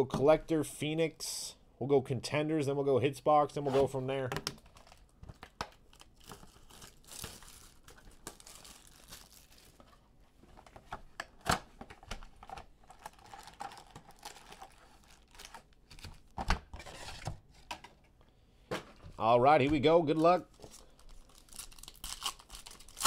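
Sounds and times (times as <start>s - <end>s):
plastic wrap crinkling: 4.6s - 10.0s, 12.2s - 16.4s, 20.2s - 23.0s
foil packs rustling: 5.9s - 10.0s, 12.4s - 17.2s, 19.8s - 23.0s.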